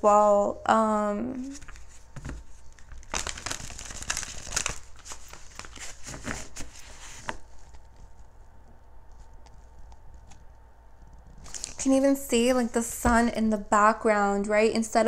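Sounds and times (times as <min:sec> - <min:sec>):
cards rustling and flicking: 0:01.4 - 0:08.2, 0:11.4 - 0:11.8.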